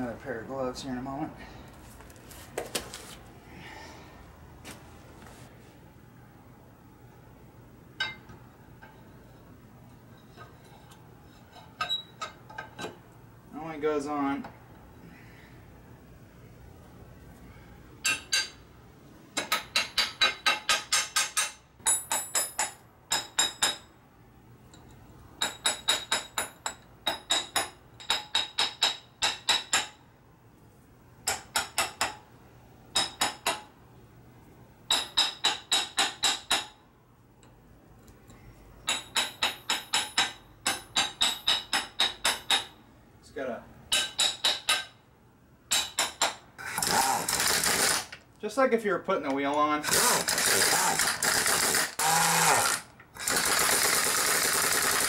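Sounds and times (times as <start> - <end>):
hammer tapping on steel: 38.8 - 42.8, 43.9 - 45.0.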